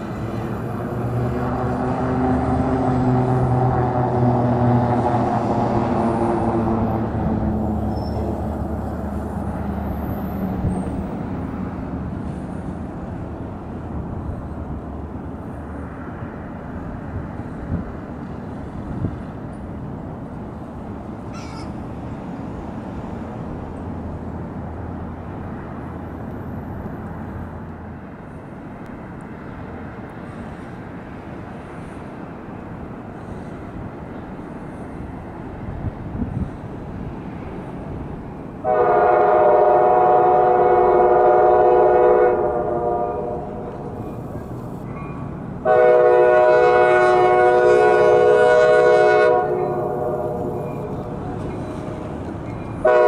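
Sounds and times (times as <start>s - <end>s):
city traffic: 0.0s - 53.0s
low rumble of trains: 0.0s - 53.0s
high bird call: 21.3s - 21.8s.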